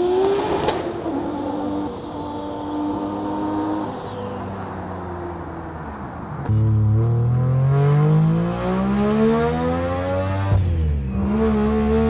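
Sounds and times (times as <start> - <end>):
rotary engine accelerating: 0.0 - 5.6, 6.4 - 12.0
engine running steadily: 6.4 - 7.6.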